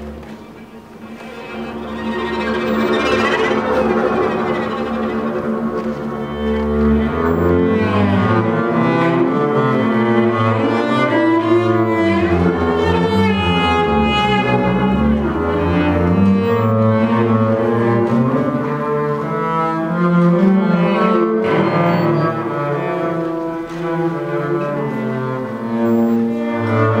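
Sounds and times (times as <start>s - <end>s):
cello and low bowed strings: 0.0s - 27.0s.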